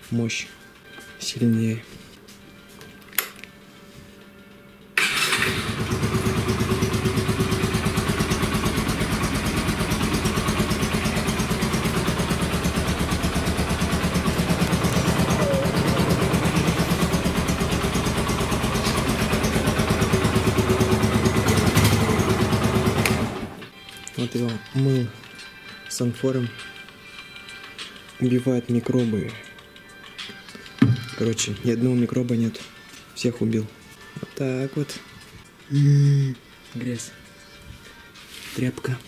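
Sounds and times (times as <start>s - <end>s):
motorcycle engine idling: 5.3s - 23.5s.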